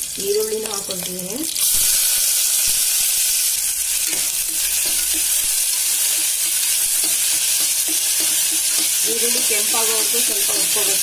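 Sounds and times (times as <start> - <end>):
onions sizzling in hot oil: 0.0 - 11.0
metal spoon stirring against pot: 3.1 - 11.0.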